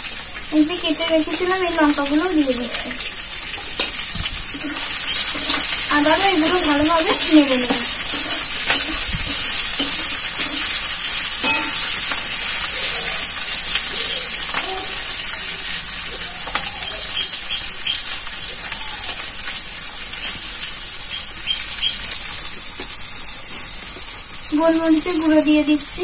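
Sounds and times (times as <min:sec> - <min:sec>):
vegetables sizzling in hot oil: 0:00.0 - 0:26.0
spatula scraping a metal pan: 0:06.5 - 0:13.2.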